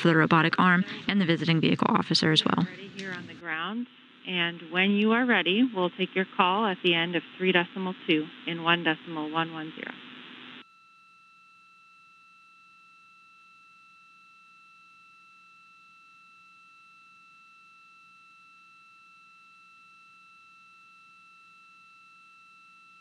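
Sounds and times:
faint low hum: 0:00.0 - 0:10.6.

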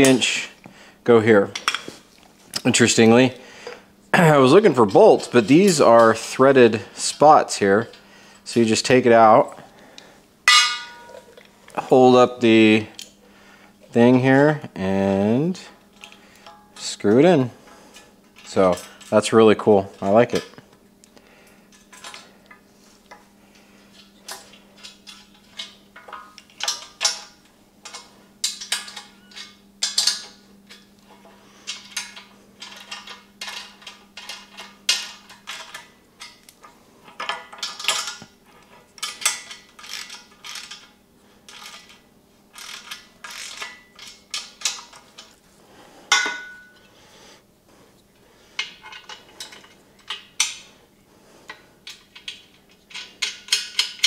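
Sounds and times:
loud ringing metal clank: 0:10.5 - 0:11.3
metal parts clinking on frame: 0:10.5 - 0:11.4.

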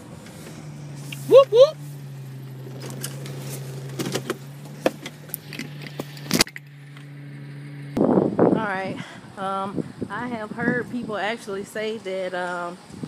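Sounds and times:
clicks and rustling of handling: 0:02.8 - 0:07.1.

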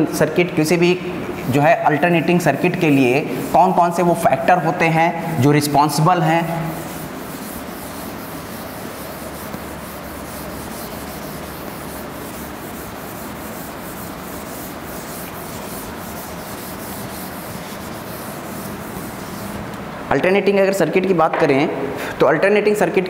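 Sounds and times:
duster scrubbing blackboard: 0:01.4 - 0:19.8.

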